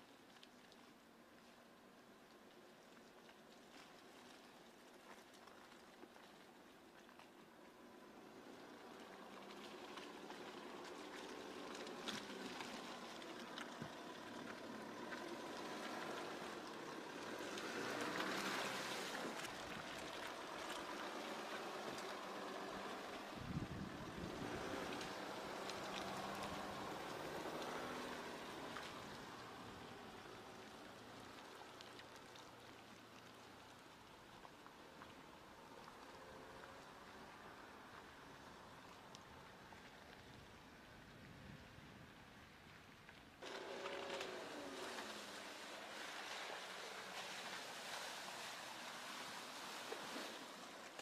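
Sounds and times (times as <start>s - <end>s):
low engine hum: 0.0s - 51.0s
tyres working through wet mud: 0.0s - 51.0s
crackles: 24.7s - 41.2s.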